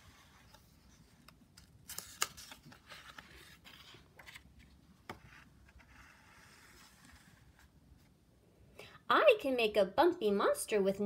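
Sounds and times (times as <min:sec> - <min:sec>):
book page rustling: 0:00.0 - 0:08.0.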